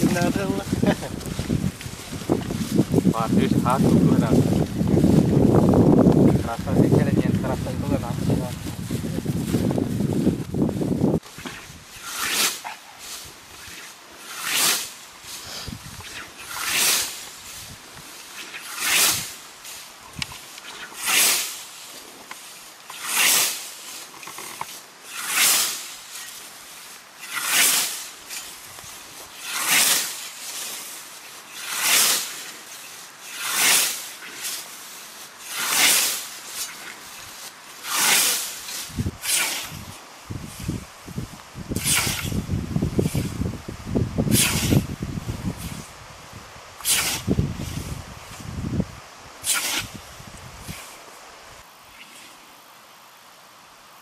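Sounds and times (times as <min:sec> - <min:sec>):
scythe swishing through grass: 0:00.0 - 0:06.6, 0:08.1 - 0:46.0, 0:46.7 - 0:48.6, 0:49.3 - 0:52.4.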